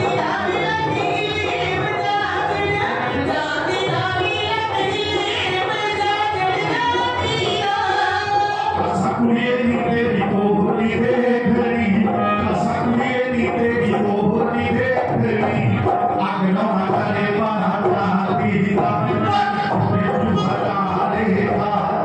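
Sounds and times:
woman singing through microphone: 0:00.0 - 0:22.0
man singing: 0:08.8 - 0:22.0.

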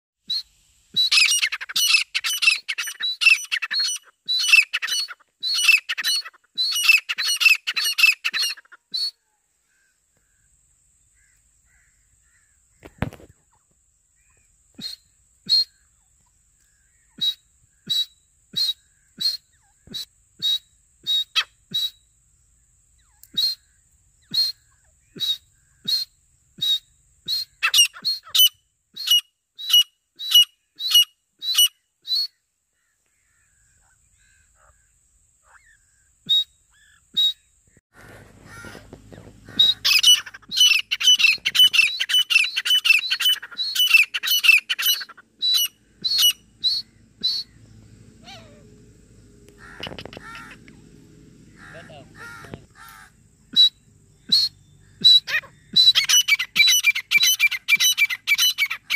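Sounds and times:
francolins calling: 0:00.3 - 0:58.9.

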